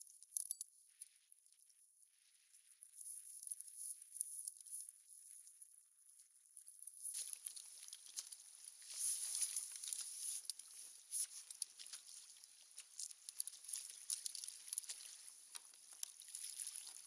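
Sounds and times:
fish splashing in water: 7.5 - 17.0.

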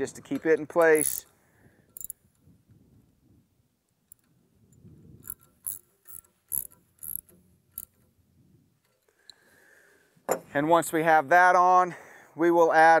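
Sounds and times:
socket ratchet clicking: 0.8 - 1.3, 1.9 - 2.2, 5.2 - 8.0.

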